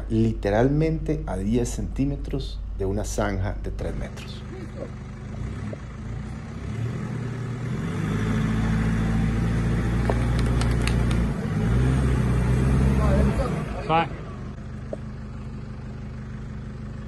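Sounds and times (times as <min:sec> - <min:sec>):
suv engine revving under load: 0:04.3 - 0:17.0.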